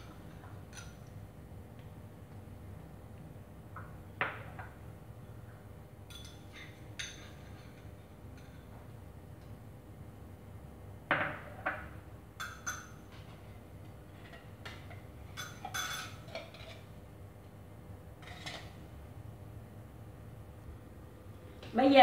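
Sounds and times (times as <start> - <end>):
metal spoon clinking on bowl: 15.4 - 16.8.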